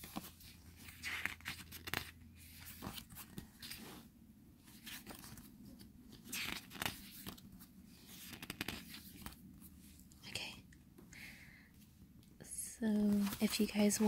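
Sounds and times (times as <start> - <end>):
book pages turning: 0.0 - 10.0, 13.0 - 14.0.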